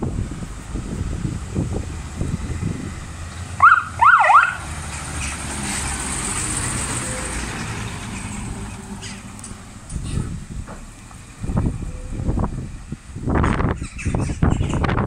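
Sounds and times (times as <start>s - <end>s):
diesel engine of passing truck: 0.0s - 15.0s
fire engine siren sweeps: 0.7s - 4.8s, 5.4s - 7.8s.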